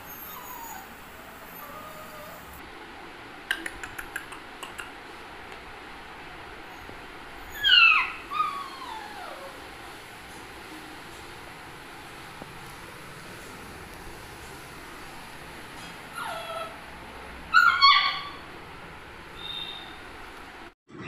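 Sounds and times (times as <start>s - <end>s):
puppy whining: 0.0s - 2.6s, 6.6s - 9.7s, 15.8s - 16.9s, 17.5s - 18.5s
puppy yelp: 0.0s - 2.6s, 6.7s - 9.6s, 15.8s - 16.8s, 17.5s - 18.5s.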